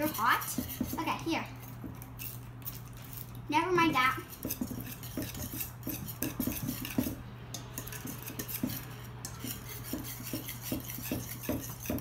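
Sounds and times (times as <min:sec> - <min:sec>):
whisk clinking against metal bowl: 0:00.0 - 0:12.0.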